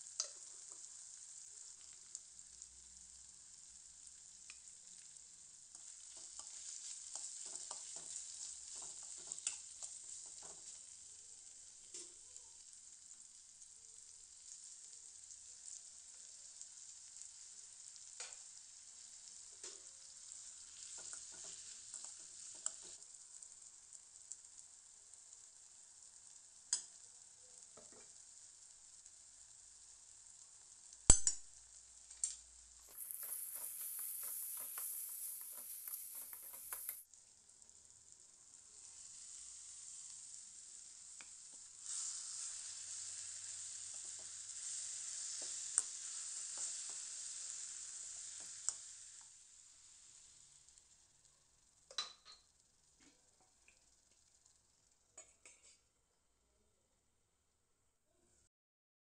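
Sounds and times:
vegetables sizzling in oil: 0.0s - 55.8s
metal spoon scraping pan: 32.9s - 37.0s.

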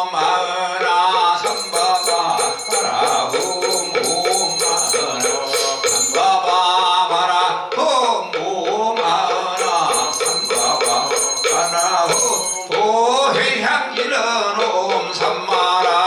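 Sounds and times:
person chanting: 0.0s - 16.0s
handbell ringing: 1.4s - 6.6s, 9.6s - 13.0s.

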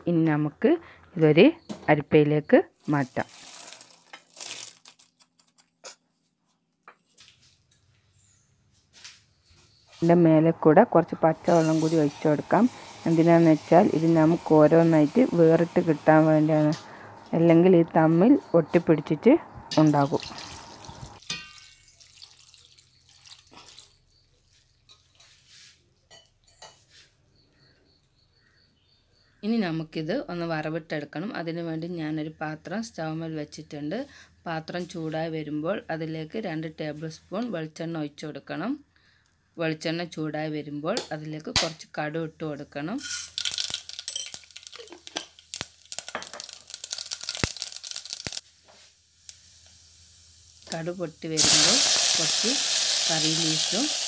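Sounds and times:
mustard seeds sizzling in oil: 11.1s - 16.8s, 19.7s - 24.2s, 43.0s - 54.0s
water splashing through colander: 19.7s - 24.0s.

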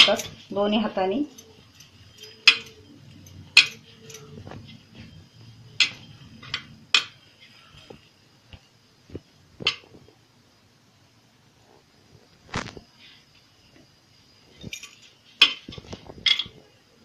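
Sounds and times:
metallic clinks on plate: 1.3s - 4.4s.

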